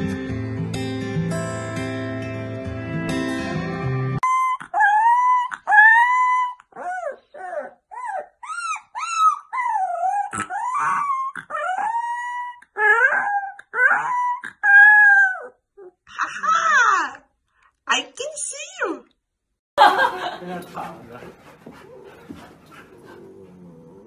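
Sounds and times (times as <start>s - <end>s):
puppies howling and yipping: 4.2s - 15.6s.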